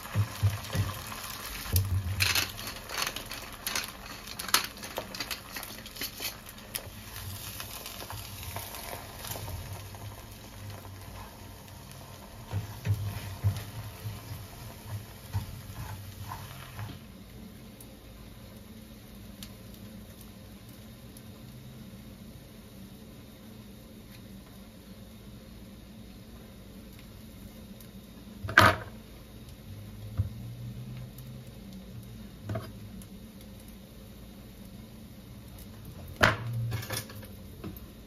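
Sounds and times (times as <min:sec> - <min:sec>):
egg whites sizzling in pan: 0:00.0 - 0:38.0
wooden spatula scraping pan: 0:12.4 - 0:17.0.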